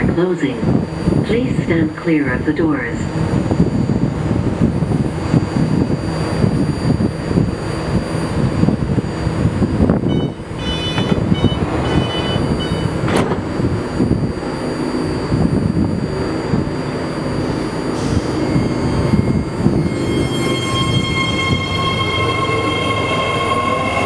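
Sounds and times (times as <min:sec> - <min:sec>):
train equipment low rumble: 0:00.0 - 0:24.0
high beeps: 0:10.1 - 0:13.0
rising electronic sweep: 0:13.6 - 0:24.0.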